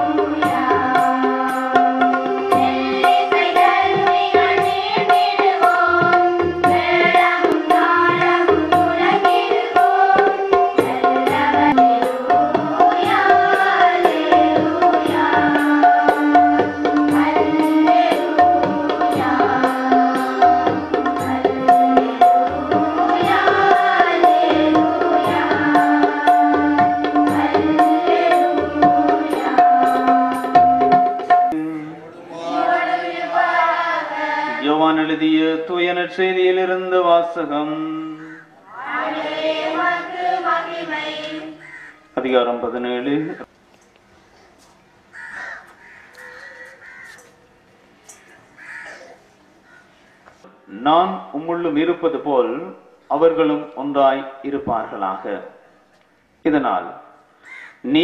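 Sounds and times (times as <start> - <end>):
person singing a devotional hymn: 0.0 - 30.8, 31.5 - 41.6
tabla drumming: 0.0 - 31.6.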